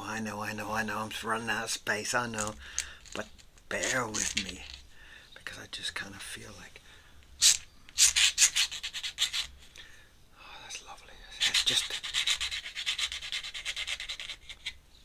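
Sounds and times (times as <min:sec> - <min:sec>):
pen scratching on paper: 0:08.0 - 0:09.5, 0:11.4 - 0:14.7.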